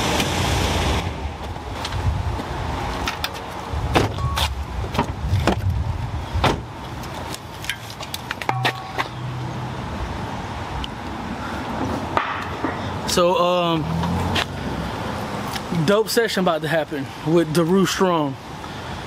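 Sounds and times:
car door clicks and knocks: 0:03.9 - 0:04.2, 0:06.4 - 0:06.7.

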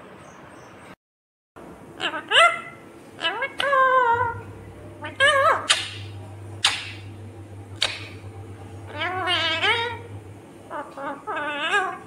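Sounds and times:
parakeet squawking: 0:02.0 - 0:10.1, 0:10.7 - 0:12.0
parakeet warbling calls: 0:02.0 - 0:12.0.

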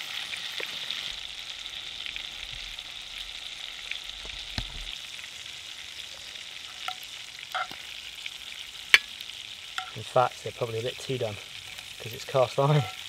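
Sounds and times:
meat sizzling in butter: 0:00.0 - 0:13.0.

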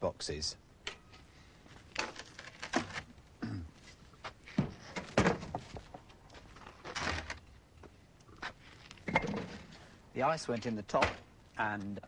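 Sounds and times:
knocks and thunks on wooden box: 0:04.6 - 0:06.0.

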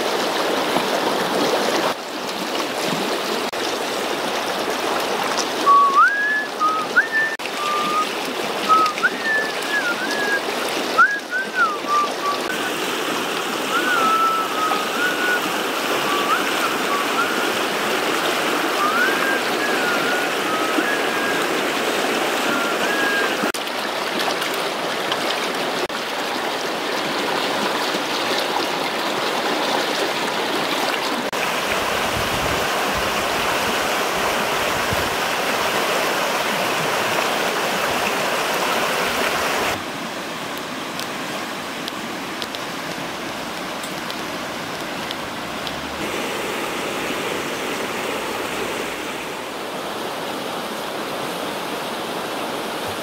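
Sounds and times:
river rushing over rocks: 0:00.0 - 0:53.0
short whistled notes: 0:05.7 - 0:08.1, 0:08.7 - 0:10.4, 0:11.0 - 0:12.5, 0:13.7 - 0:15.4, 0:18.8 - 0:21.5.

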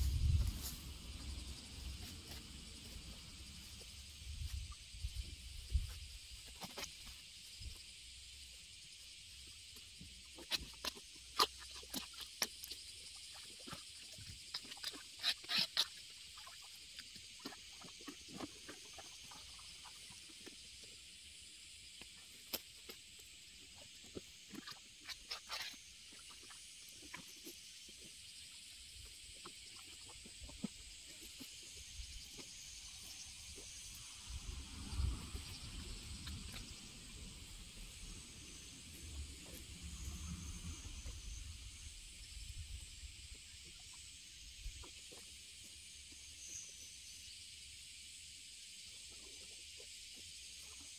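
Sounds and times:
sickle cutting grass: 0:00.0 - 0:03.8
insects humming: 0:00.0 - 0:50.9.

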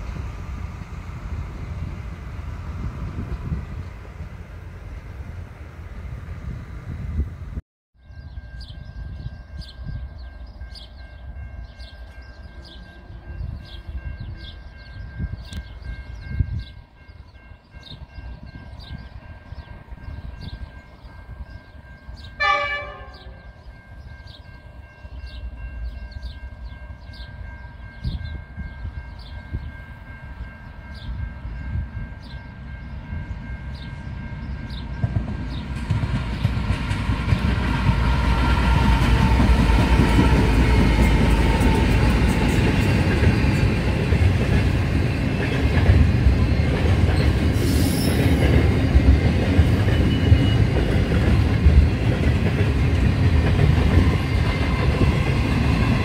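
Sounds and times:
diesel locomotive rumble: 0:00.0 - 0:07.6, 0:32.5 - 0:56.0
wind on microphone: 0:00.0 - 0:07.6, 0:13.1 - 0:21.7, 0:50.6 - 0:56.0
train horn blast: 0:22.2 - 0:23.6.

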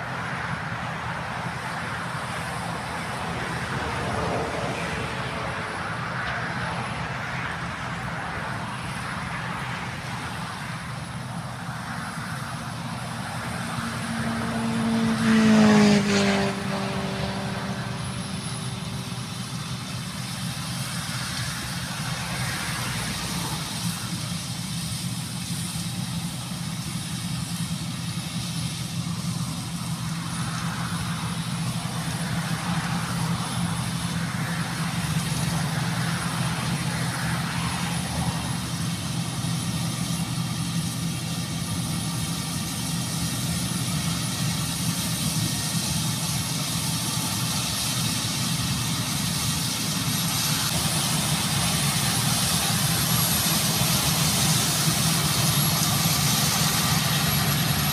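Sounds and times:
combine harvester engine hum: 0:00.0 - 0:57.9.

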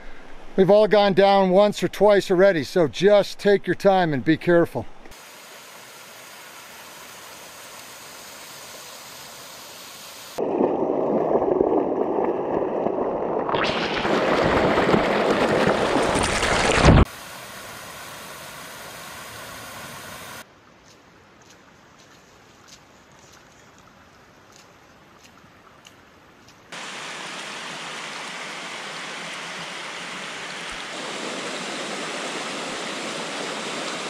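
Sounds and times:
creek water rushing over rocks: 0:26.8 - 0:34.0.

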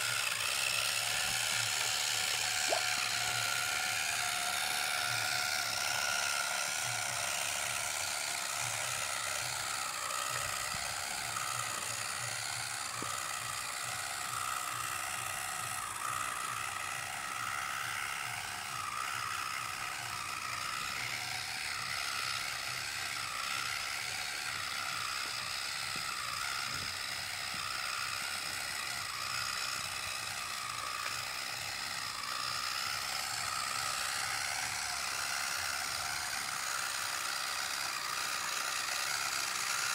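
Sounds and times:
small electric motor whining: 0:00.0 - 0:39.9.

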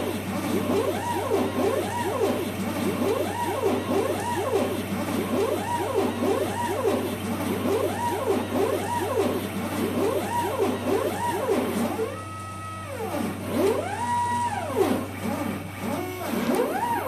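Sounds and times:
stepper motors whining: 0:10.0 - 0:17.0.

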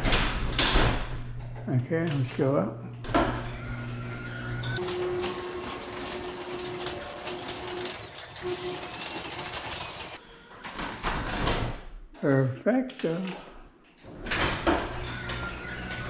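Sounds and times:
garage door opener motor humming: 0:02.9 - 0:10.2, 0:14.0 - 0:16.0
garage door rattling on tracks: 0:03.0 - 0:10.2.

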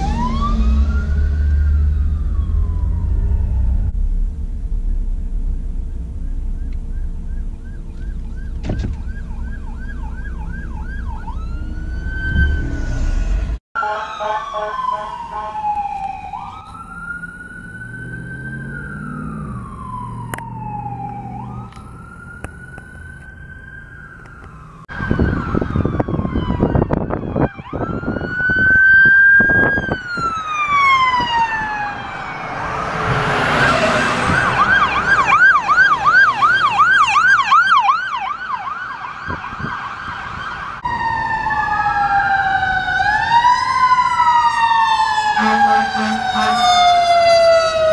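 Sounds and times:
siren yelp: 0:00.0 - 0:03.9, 0:06.2 - 0:47.9
siren wail: 0:00.0 - 0:04.2, 0:05.3 - 0:47.9
vehicle passing close: 0:10.8 - 0:13.6, 0:14.8 - 0:26.8, 0:29.8 - 0:37.7.

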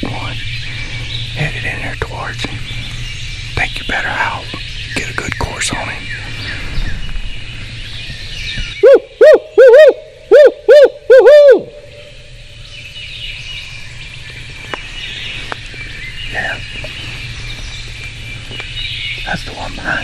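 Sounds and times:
person imitating owl hoots: 0:08.8 - 0:11.8.

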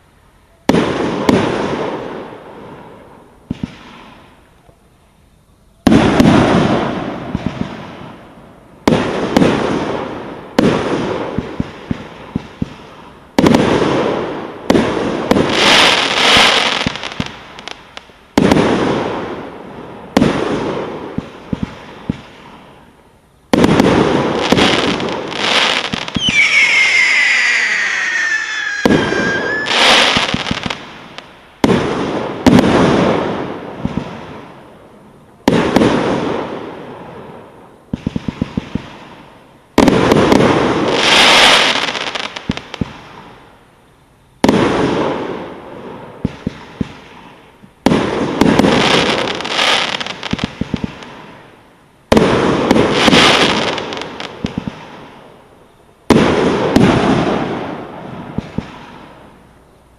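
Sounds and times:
firework bangs: 0:00.7 - 0:02.9, 0:03.5 - 0:04.5, 0:05.8 - 0:22.9, 0:23.5 - 0:34.6, 0:35.4 - 0:43.3, 0:44.4 - 0:55.2, 0:56.0 - 0:59.4
small firework pops: 0:03.5 - 0:04.8, 0:10.6 - 0:13.8, 0:20.2 - 0:22.7, 0:37.9 - 0:39.2, 0:39.8 - 0:43.3, 0:46.2 - 0:51.3, 0:52.1 - 0:55.0, 0:58.3 - 0:59.2
falling firework whistle: 0:24.7 - 0:30.8.

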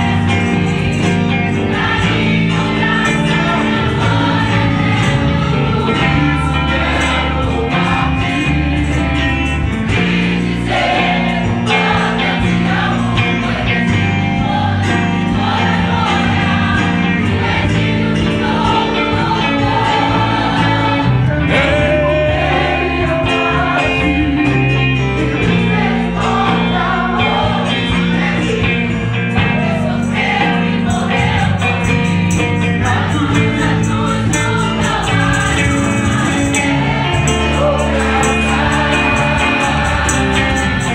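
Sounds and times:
gospel choir singing: 0:00.0 - 0:40.9
live band accompaniment: 0:00.0 - 0:40.9
man singing into a microphone: 0:21.3 - 0:25.4.

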